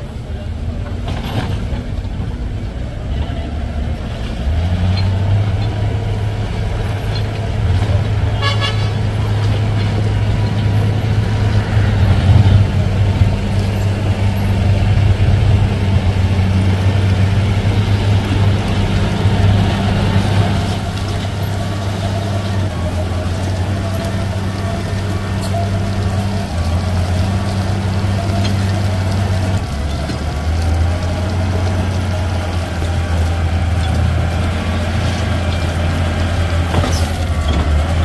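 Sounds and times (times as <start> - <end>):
heavy vehicle engine running: 0.0 - 38.0
short horn toot: 8.3 - 9.0.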